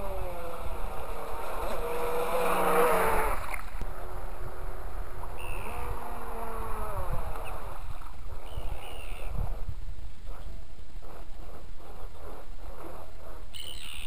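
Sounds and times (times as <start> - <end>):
model boat motor whining: 0.0 - 8.0
water noise: 0.0 - 13.6
wind noise: 0.0 - 14.0.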